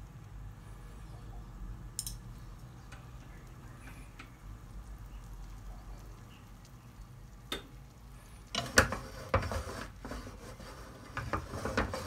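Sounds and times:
egg sizzling in butter: 0:02.2 - 0:12.0
utensil scraping a pan: 0:08.5 - 0:12.0.

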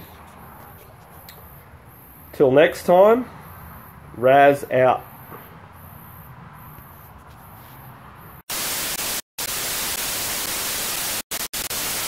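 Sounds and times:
tv static hiss: 0:08.5 - 0:12.0.

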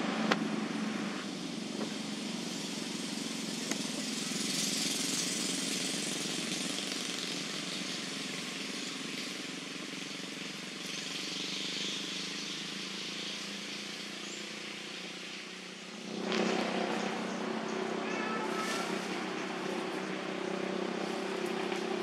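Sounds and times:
high hiss: 0:00.5 - 0:22.0
low droning hum: 0:14.2 - 0:22.0.

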